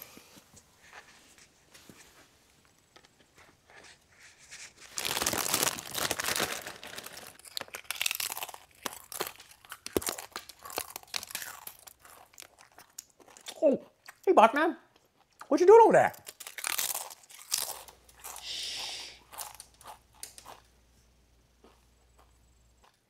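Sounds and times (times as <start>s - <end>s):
crunching and chewing chip: 4.8s - 14.3s, 14.9s - 15.5s, 16.1s - 20.7s.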